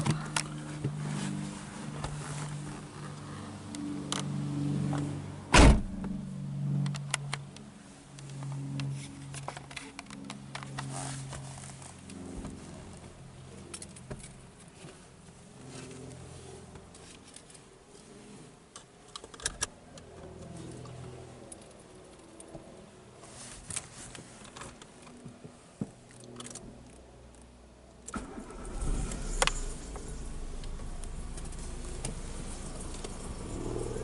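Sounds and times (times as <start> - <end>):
low hum: 0.0 - 14.4, 28.1 - 34.0
car door thump: 5.5 - 6.2.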